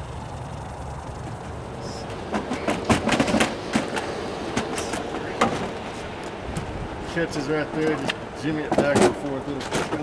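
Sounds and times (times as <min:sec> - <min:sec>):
light aircraft engine rumble: 0:00.0 - 0:10.0
sharp clicks and knocks: 0:02.0 - 0:06.7, 0:08.0 - 0:10.0.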